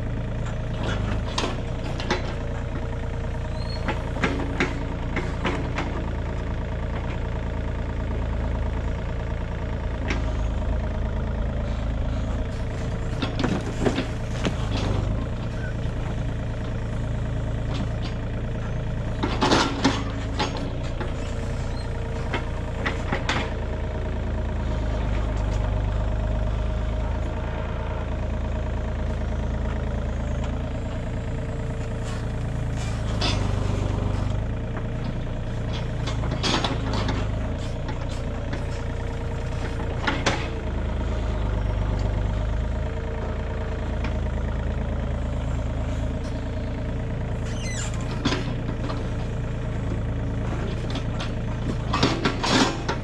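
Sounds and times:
clunks and rattles: 0:00.0 - 0:53.0
digging machine engine running: 0:00.0 - 0:53.0.

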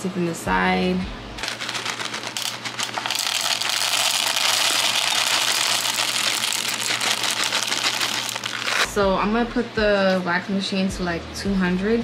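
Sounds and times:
wax beads rattling into metal pot: 0:01.4 - 0:09.0.

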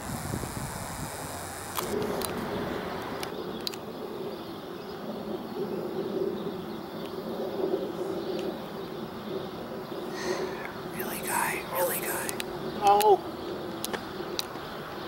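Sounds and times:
electric train buzzing hum: 0:00.0 - 0:03.3.

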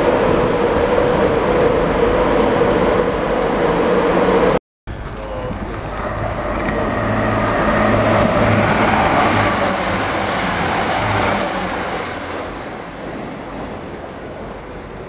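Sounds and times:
train engine drone: 0:00.0 - 0:15.0
wheels rushing on rails: 0:00.0 - 0:15.0
high whine: 0:04.9 - 0:15.0.

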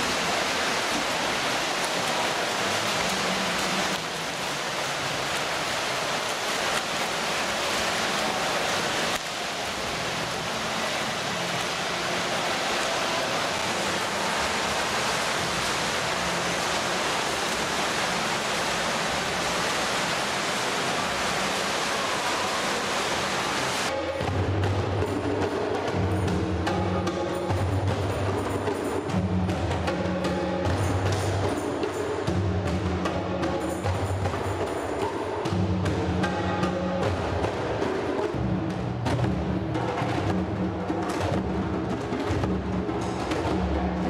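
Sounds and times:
swimmers splashing water: 0:00.0 - 0:24.4
hand drums playing a beat: 0:24.2 - 0:44.0.

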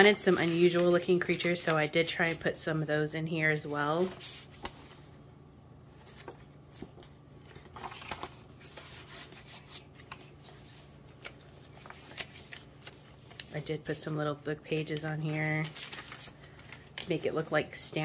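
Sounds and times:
paper pages rustling: 0:00.0 - 0:02.9, 0:03.6 - 0:05.1, 0:05.9 - 0:18.0.

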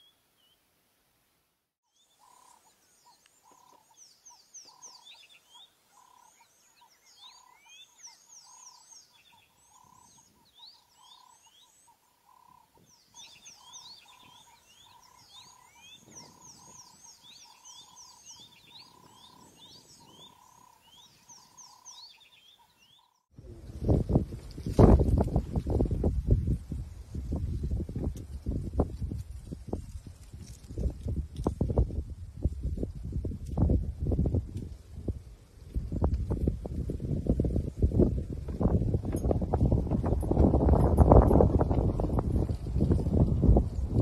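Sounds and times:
frogs calling: 0:02.2 - 0:23.3.

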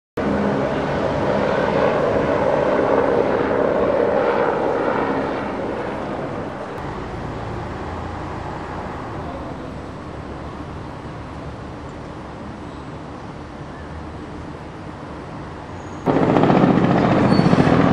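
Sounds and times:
helicopter flying past: 0:00.2 - 0:12.4, 0:16.1 - 0:17.9.

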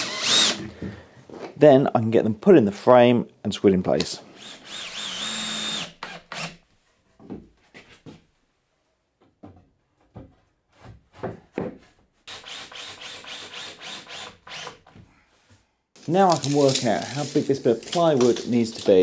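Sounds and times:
wooden timbers knocking and scraping: 0:09.2 - 0:12.0.

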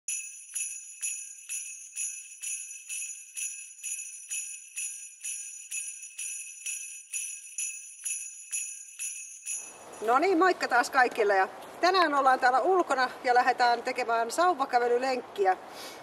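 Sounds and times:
jingle bells shaken: 0:00.1 - 0:10.5.

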